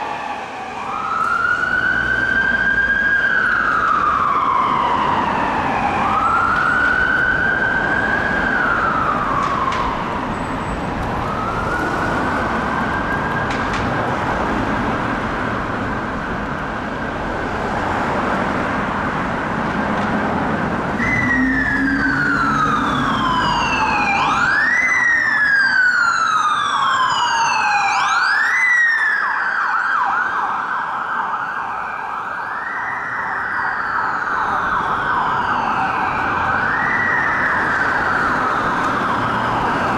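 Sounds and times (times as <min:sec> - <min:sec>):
ambulance siren wailing: 0:00.0 - 0:39.9
police sirens wailing: 0:00.0 - 0:39.9
road traffic: 0:00.0 - 0:39.9.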